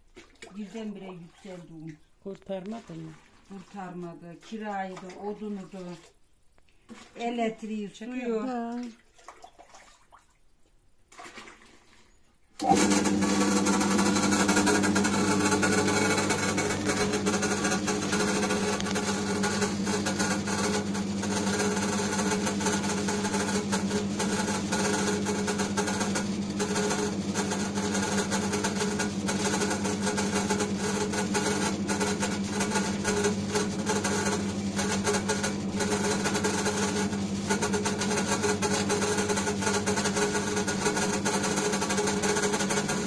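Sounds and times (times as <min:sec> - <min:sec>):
dough kneading machine motor hum: 0:12.6 - 0:43.0.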